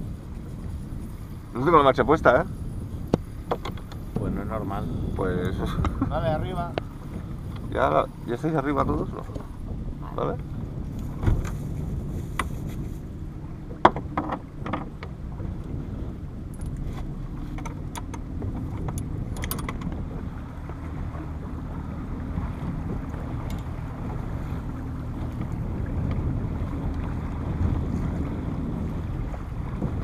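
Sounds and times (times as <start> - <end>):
motorboat engine running: 0.0 - 30.0
water noise: 0.0 - 30.0
wind: 0.0 - 30.0
gear clicking and knocking: 17.6 - 20.0.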